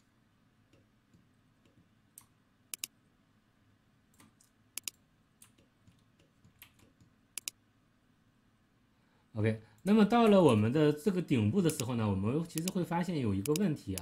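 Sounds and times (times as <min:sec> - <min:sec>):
computer mouse clicking: 0:00.7 - 0:02.9, 0:04.1 - 0:07.6, 0:11.7 - 0:11.9, 0:12.5 - 0:12.8, 0:13.4 - 0:14.0.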